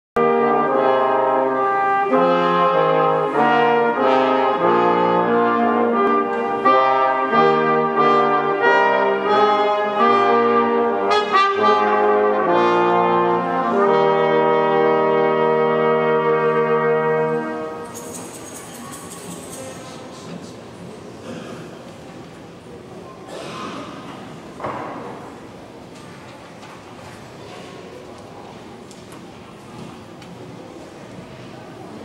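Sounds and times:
brass ensemble playing chords: 0.2s - 18.4s.

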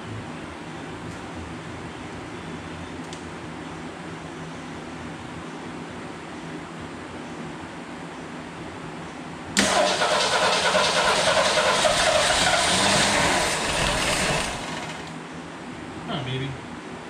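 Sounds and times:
car engine cranking and starting: 9.6s - 15.2s.

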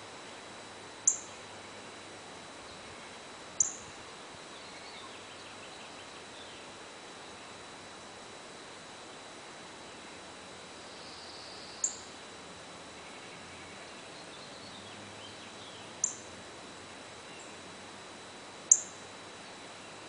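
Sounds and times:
faint birdsong: 0.0s - 7.8s, 8.5s - 18.0s, 18.7s - 20.0s
cardinal chip calls: 1.0s - 1.4s, 3.6s - 3.9s, 11.0s - 12.1s, 15.7s - 16.3s, 18.7s - 19.0s.

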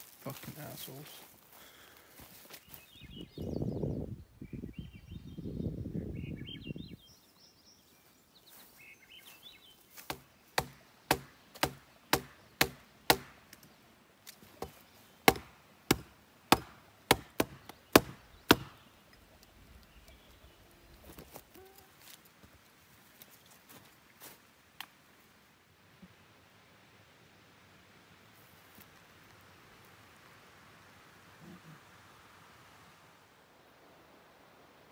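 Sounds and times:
hatchet chopping branch: 10.0s - 18.8s.

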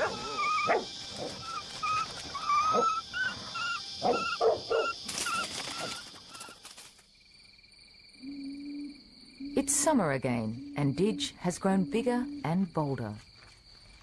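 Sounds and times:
dog barking: 0.0s - 0.9s, 4.0s - 5.0s
high insect drone: 0.0s - 14.0s.

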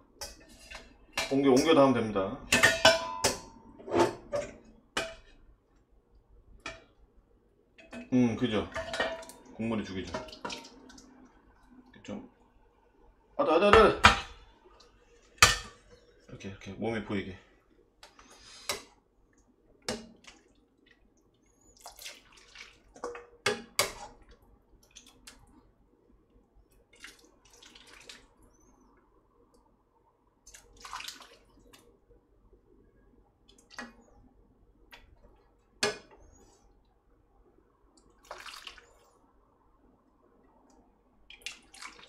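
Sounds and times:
broth pouring and splashing: 20.2s - 25.5s, 26.8s - 28.4s, 30.4s - 31.7s, 38.0s - 39.2s, 41.3s - 42.0s.

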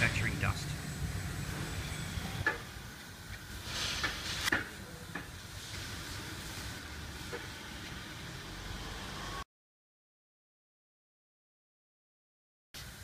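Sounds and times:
steady low hum: 0.0s - 8.5s
rustling hiss: 0.0s - 8.7s.

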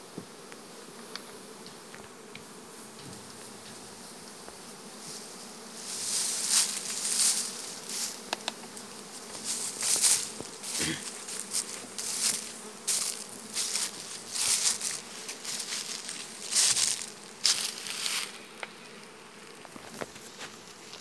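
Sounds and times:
bees buzzing: 0.0s - 21.0s
scratchy rustles: 5.9s - 8.2s.

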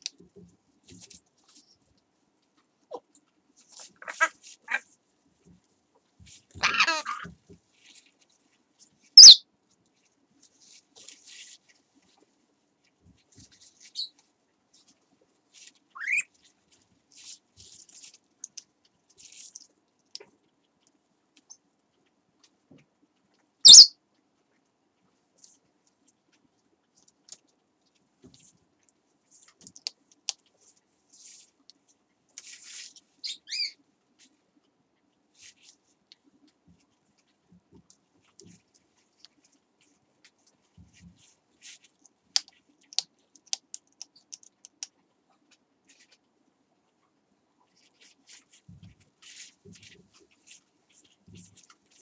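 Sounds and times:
parrot call: 6.6s - 7.3s, 9.2s - 9.4s, 16.0s - 16.3s, 23.7s - 23.9s
faint scratching: 47.6s - 52.0s.

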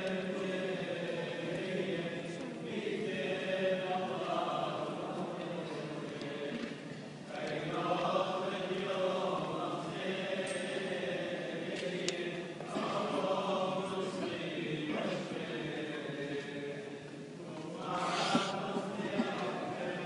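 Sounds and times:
voices chanting: 17.6s - 20.0s.

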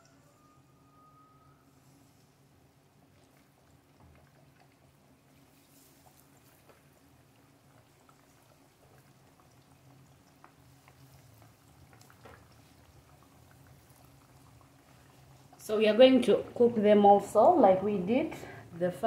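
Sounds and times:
low steady hum: 0.0s - 19.0s
pancakes deep-frying in oil: 1.6s - 19.0s
oil crackling and popping: 3.2s - 15.7s.

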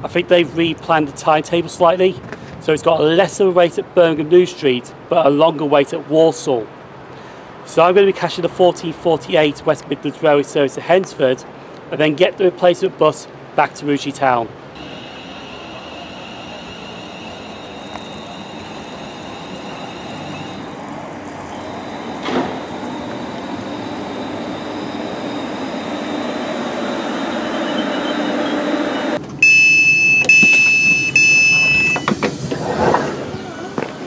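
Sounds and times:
train running with motor whine: 14.8s - 29.4s, 30.9s - 34.0s
door button electronic beeps: 27.4s - 32.2s.

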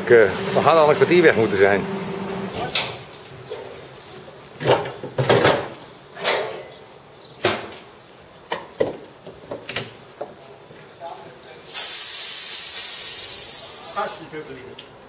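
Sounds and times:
metallic clanks of railway coupling: 2.5s - 6.8s.

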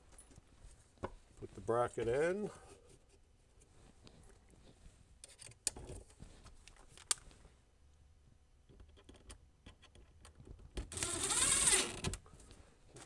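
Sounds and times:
cordless drill running: 10.9s - 12.0s.

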